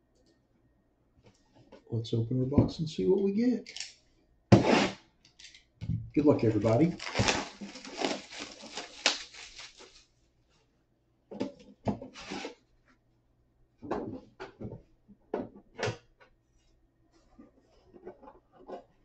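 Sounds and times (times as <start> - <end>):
plastic wrapping tearing: 6.4 - 10.1
box lid rustling and scraping: 7.0 - 9.0.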